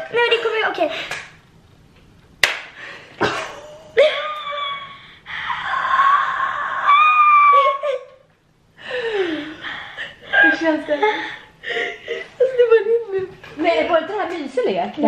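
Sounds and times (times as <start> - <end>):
loud shrieking: 4.0 - 7.8.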